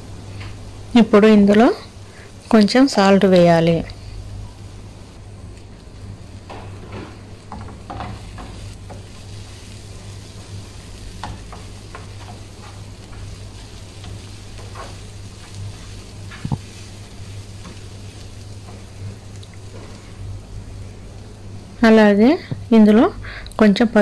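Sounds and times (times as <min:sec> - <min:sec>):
onions sizzling in oil: 0:00.0 - 0:24.0
steady low hum: 0:00.0 - 0:24.0
wooden spoon scraping pan: 0:11.2 - 0:17.0.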